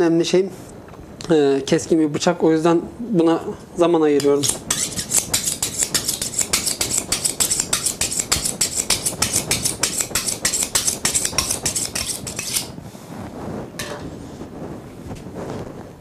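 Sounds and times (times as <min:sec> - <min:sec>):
knife scraping on sharpening steel: 0:04.2 - 0:12.8.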